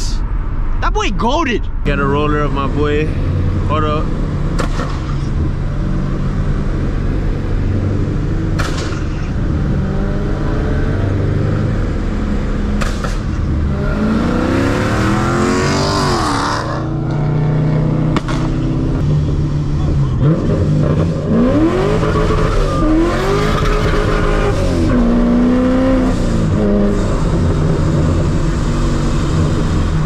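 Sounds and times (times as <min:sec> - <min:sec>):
car engine revving: 0:01.7 - 0:30.0.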